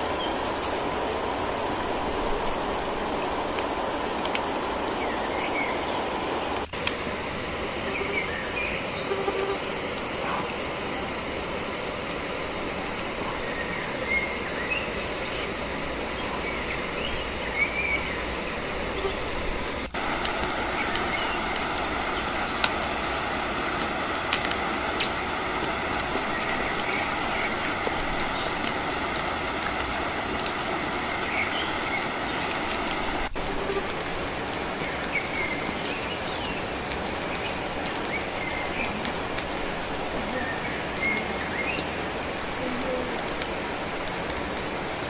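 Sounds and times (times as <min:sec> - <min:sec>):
campfire crackling: 0:00.0 - 0:45.0
thin high tone: 0:07.3 - 0:22.6.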